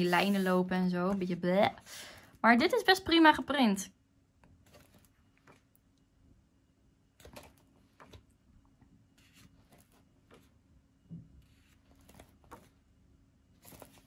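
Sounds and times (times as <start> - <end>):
paper rustling: 0.0 - 2.3, 4.6 - 5.7, 9.2 - 10.5, 11.4 - 12.8, 13.6 - 14.0.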